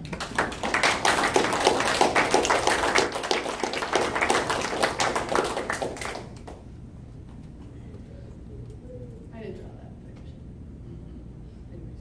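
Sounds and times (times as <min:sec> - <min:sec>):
audience applause: 0:00.0 - 0:06.6.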